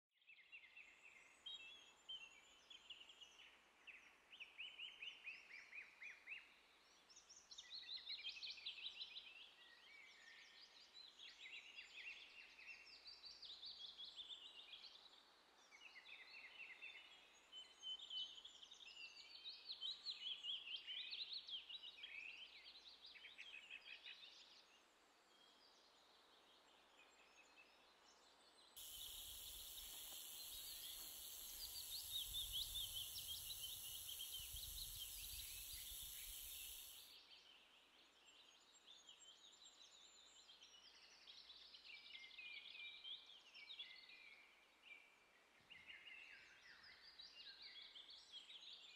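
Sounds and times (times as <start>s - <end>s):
rattlesnake rattle: 28.8s - 37.1s
small birds chirping: 28.8s - 37.1s.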